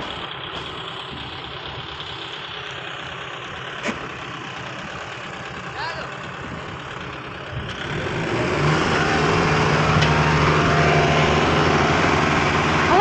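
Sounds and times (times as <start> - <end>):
tractor engines revving under load: 0.0 - 13.0.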